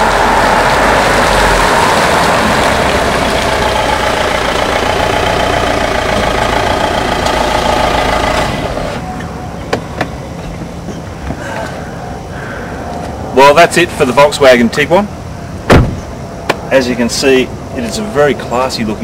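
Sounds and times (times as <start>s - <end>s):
diesel car engine running: 0.0s - 9.5s.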